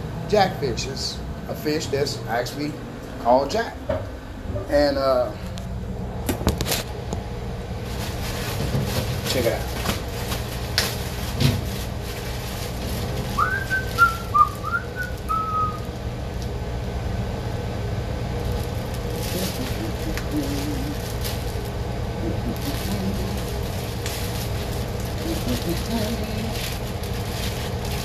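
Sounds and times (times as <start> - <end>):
steady low hum: 0.0 - 28.0
plastic bag rustling: 7.8 - 16.0, 18.3 - 28.0
person whistling: 13.4 - 15.8.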